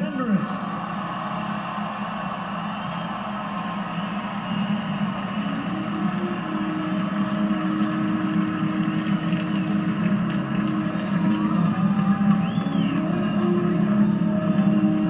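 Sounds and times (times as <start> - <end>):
stadium crowd cheering and applauding: 0.0 - 15.0.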